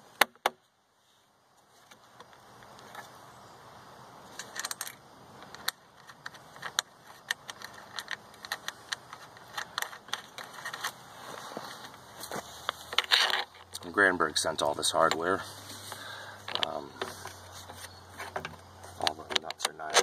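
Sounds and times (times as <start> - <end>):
metal bolts clicking and clinking: 4.3 - 11.0.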